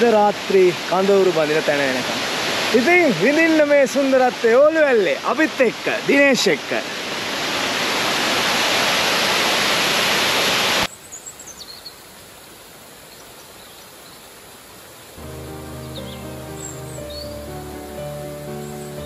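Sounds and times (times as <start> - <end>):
waterfall rushing: 0.0 - 10.9, 14.4 - 19.0
music: 15.2 - 19.0
high bird chirps: 15.3 - 19.0.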